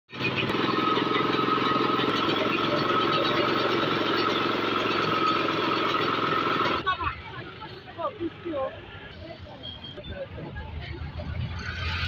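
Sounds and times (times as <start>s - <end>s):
grinding mill whine: 0.1s - 6.8s
small petrol engine running: 0.1s - 9.2s.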